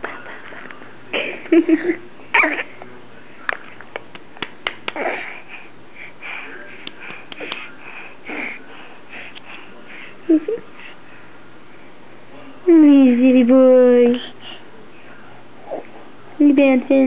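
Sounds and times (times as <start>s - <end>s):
baby babbling and grunting: 2.3s - 2.7s, 5.0s - 5.5s, 8.3s - 8.6s.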